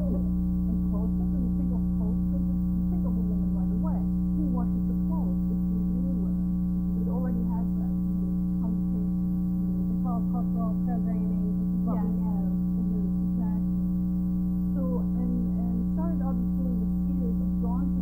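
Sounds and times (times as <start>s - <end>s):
loud electrical hum: 0.0s - 18.0s
woman speaking faintly: 10.0s - 13.7s.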